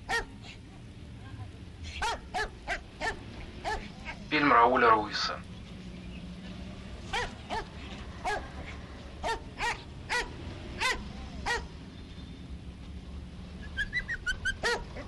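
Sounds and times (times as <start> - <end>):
dog barking: 0.0 - 0.4, 1.9 - 4.2, 7.1 - 11.7, 14.5 - 15.0
dog yipping: 0.1 - 0.6, 1.9 - 4.2, 7.1 - 11.7, 13.6 - 15.0.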